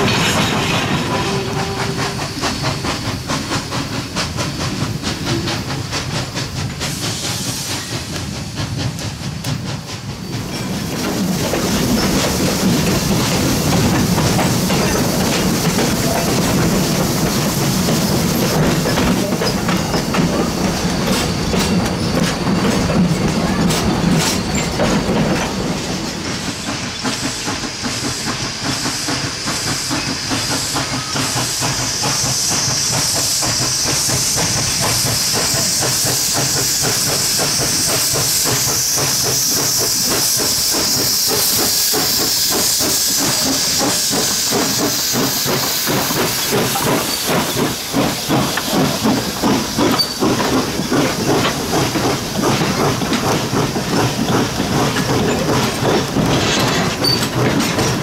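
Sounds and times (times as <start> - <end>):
steam locomotive hissing: 0.0 - 58.0
train wheels clicking over rail joints: 0.0 - 58.0.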